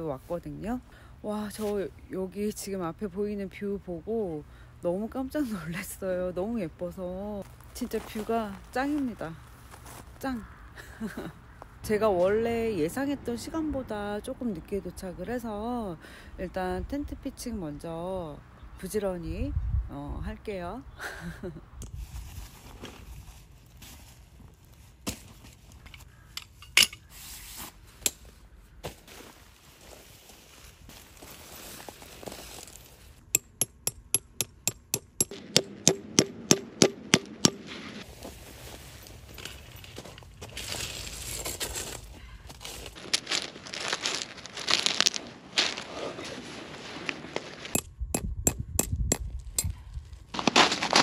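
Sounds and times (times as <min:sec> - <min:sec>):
tent fabric rustling: 0:22.0 - 0:25.8, 0:28.9 - 0:33.2, 0:37.8 - 0:47.7
sharp knocks: 0:33.4 - 0:37.9.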